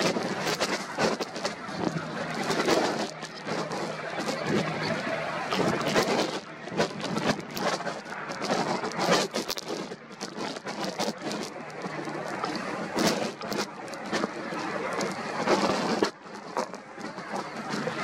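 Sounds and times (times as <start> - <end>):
wind on microphone: 0.0 - 18.0.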